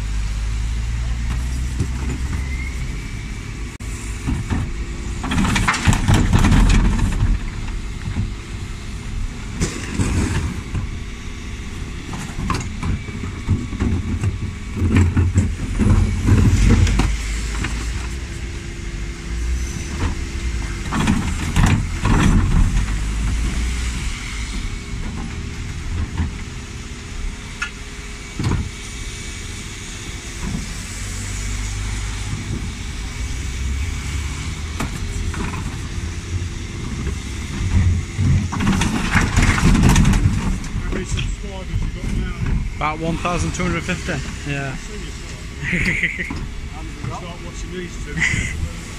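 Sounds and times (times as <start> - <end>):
diesel truck engine running: 0.0 - 48.9
bins clattering and banging: 4.2 - 8.3, 9.6 - 10.9, 12.1 - 18.2, 20.0 - 23.7, 36.7 - 44.0.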